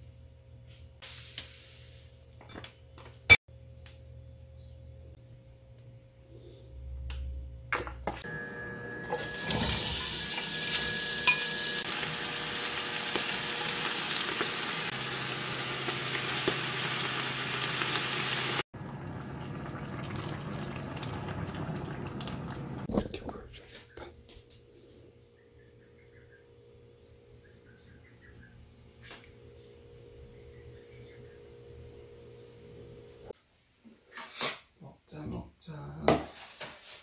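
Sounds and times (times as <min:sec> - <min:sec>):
food sizzling in hot oil: 0:01.0 - 0:02.2, 0:09.0 - 0:22.9.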